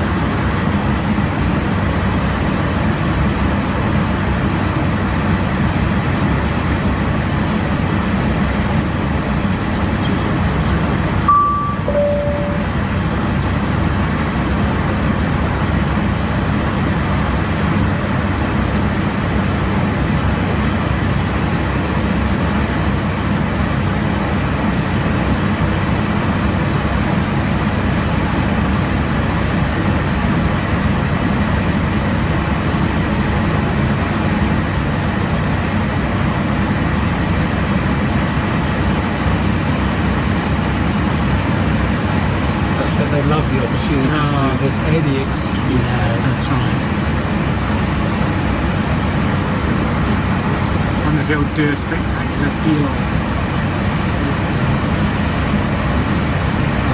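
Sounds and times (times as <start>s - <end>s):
short beeps: 11.3s - 12.9s
jet cabin rushing noise: 42.4s - 56.9s.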